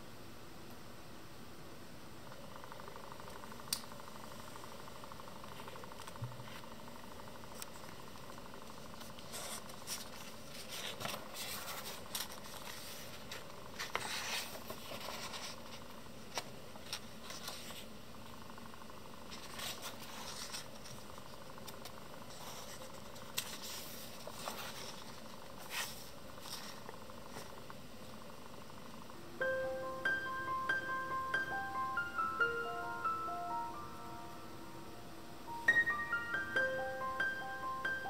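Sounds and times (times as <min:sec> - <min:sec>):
steady hiss: 0:00.0 - 0:38.0
paper pages turning: 0:08.8 - 0:17.9, 0:19.3 - 0:27.6.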